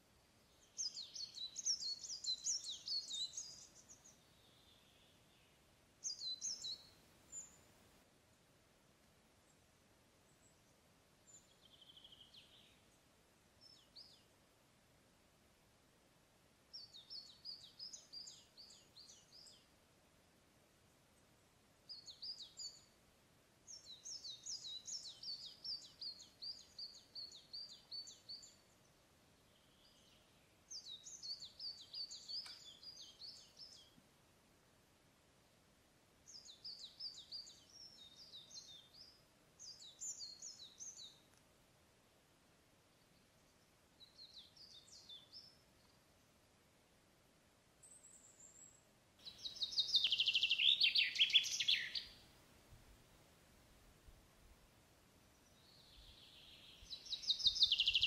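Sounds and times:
songbirds singing descending notes: 0:00.4 - 0:07.7, 0:10.3 - 0:14.4, 0:16.7 - 0:19.7, 0:21.9 - 0:23.0, 0:23.7 - 0:34.0, 0:36.3 - 0:41.4, 0:42.9 - 0:46.3, 0:47.8 - 0:52.4, 0:55.2 - 0:58.0.

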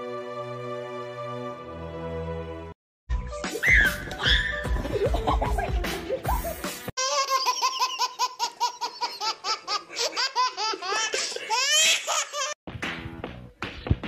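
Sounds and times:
baby laughing: 0:03.6 - 0:12.6.

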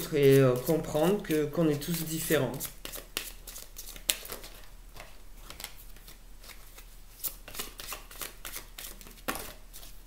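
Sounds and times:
cards being shuffled by hand: 0:00.0 - 0:10.0.

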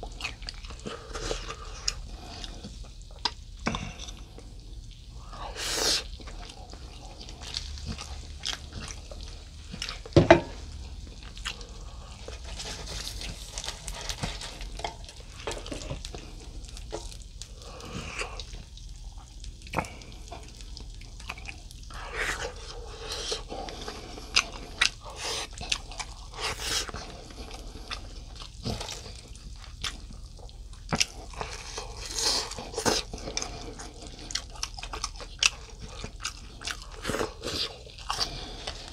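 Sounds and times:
wet chewing and biting: 0:06.0 - 0:38.9.

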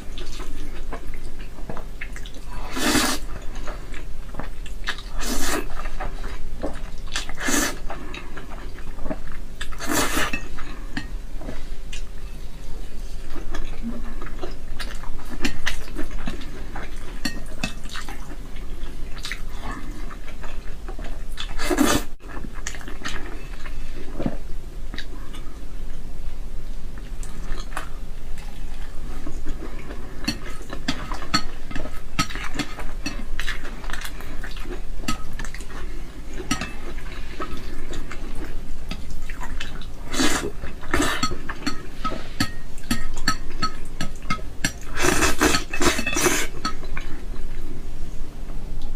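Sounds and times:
wet slurping and chewing: 0:27.2 - 0:47.2.

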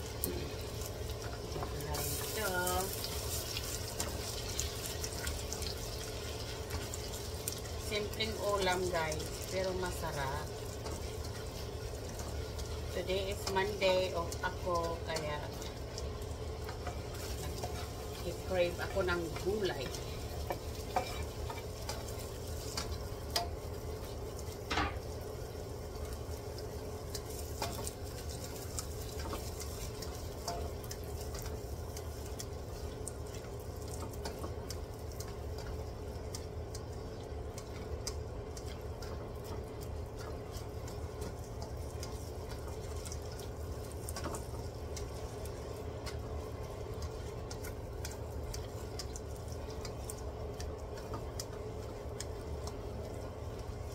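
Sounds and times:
onion sizzling in a wok: 0:00.0 - 0:53.9
spatula tapping and scraping pan: 0:19.0 - 0:23.7.

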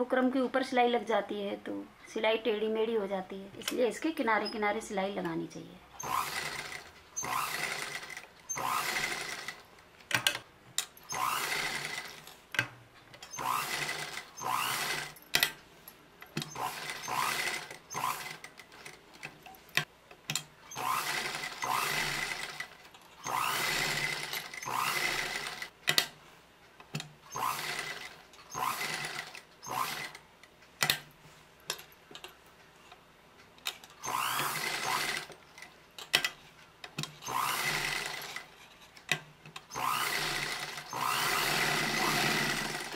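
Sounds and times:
sewing machine stitching: 0:06.0 - 0:10.4, 0:11.1 - 0:12.4, 0:13.2 - 0:15.2, 0:16.4 - 0:19.0, 0:20.6 - 0:25.7, 0:27.3 - 0:30.2, 0:34.0 - 0:35.7, 0:37.1 - 0:38.6, 0:39.7 - 0:42.9.

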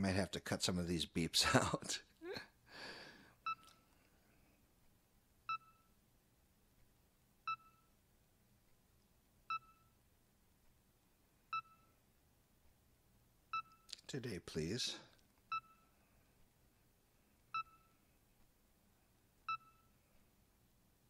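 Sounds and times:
short electronic beeps: 0:05.5 - 0:05.9, 0:09.5 - 0:09.9, 0:13.5 - 0:13.9, 0:15.5 - 0:15.9, 0:17.5 - 0:18.0, 0:19.5 - 0:19.9.

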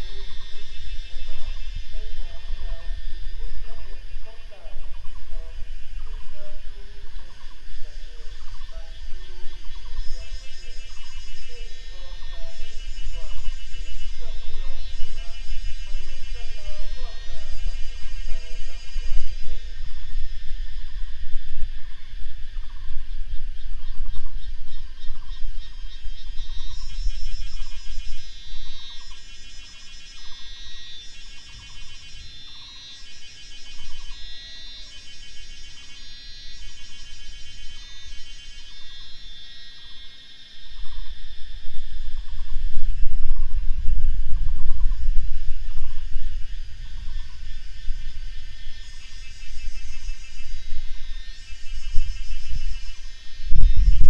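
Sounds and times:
high pulsing trills: 0:00.0 - 0:54.0
gusty low rumble: 0:41.4 - 0:54.0.

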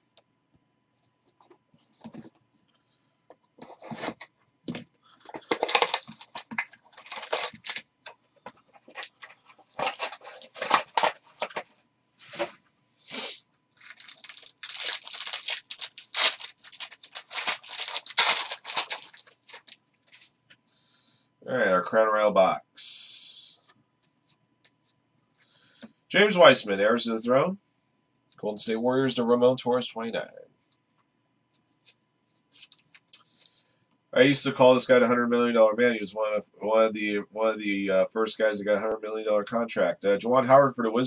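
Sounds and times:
foil wrapper tearing and crinkling: 0:05.3 - 0:07.8, 0:08.9 - 0:11.6, 0:13.7 - 0:20.2, 0:32.6 - 0:33.6.

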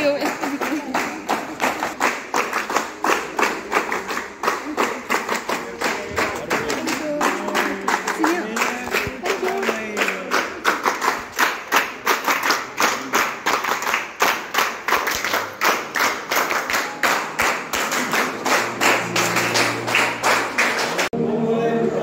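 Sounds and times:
people clapping in unison: 0:00.0 - 0:21.2.

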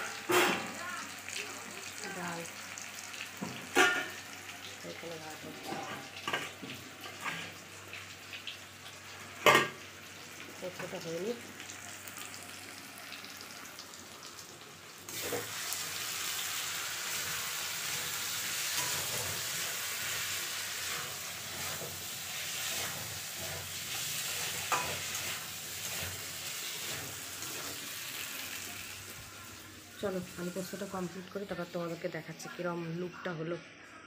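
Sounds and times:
potatoes sizzling in hot oil: 0:00.0 - 0:32.2
metal ladle scraping pan: 0:20.7 - 0:28.2.

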